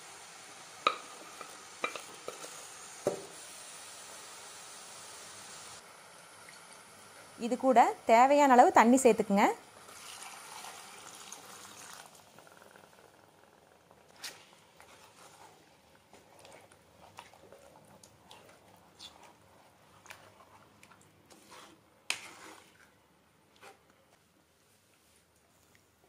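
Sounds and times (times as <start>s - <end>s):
water pouring into a pan: 9.8s - 12.3s.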